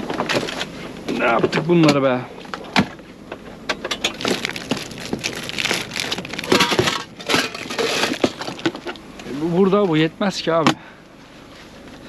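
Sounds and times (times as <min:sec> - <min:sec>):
plastic bags crinkling: 0:04.0 - 0:09.0.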